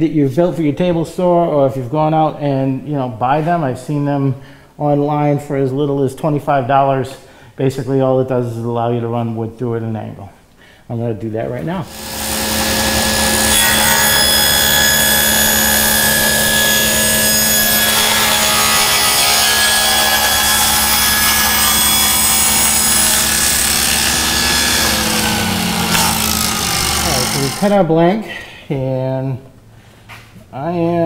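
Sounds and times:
table saw cutting wood: 11.9s - 28.0s.

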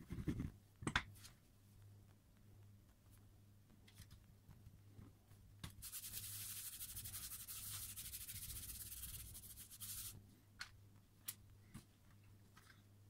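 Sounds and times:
baren rubbing on paper: 5.8s - 10.2s.

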